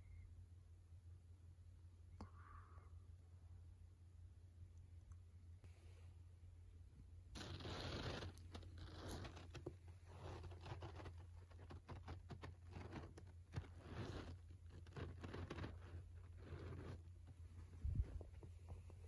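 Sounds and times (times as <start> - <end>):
low steady hum: 0.0 - 19.0
rustling of duvet: 7.4 - 11.1.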